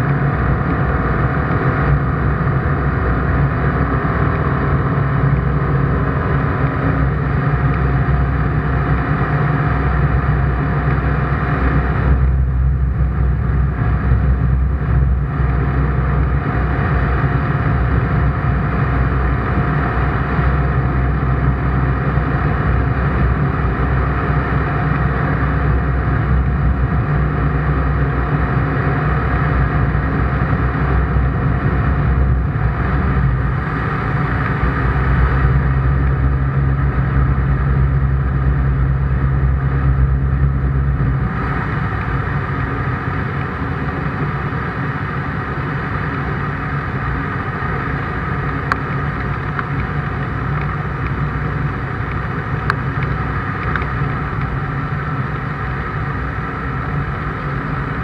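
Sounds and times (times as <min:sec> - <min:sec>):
ultralight engine and propeller drone: 0:00.0 - 0:58.0.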